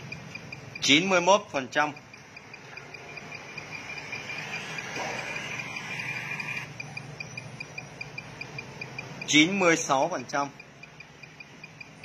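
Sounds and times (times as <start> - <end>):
short high-pitched pulses: 3.8 - 6.8.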